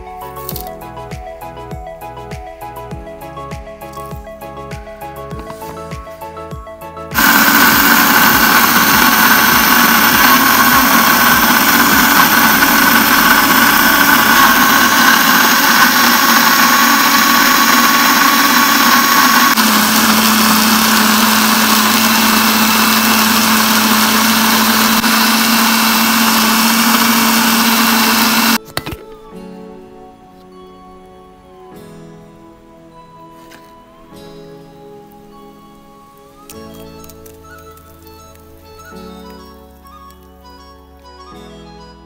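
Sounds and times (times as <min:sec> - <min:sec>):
electric blender whirring: 0:07.1 - 0:28.6.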